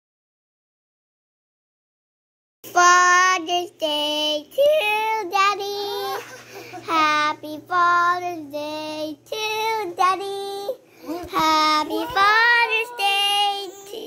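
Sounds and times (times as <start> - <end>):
child singing: 2.7 - 14.0.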